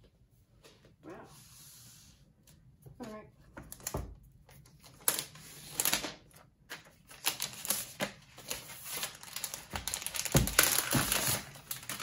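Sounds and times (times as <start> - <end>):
plastic wrap rustling and crinkling: 4.8 - 12.0.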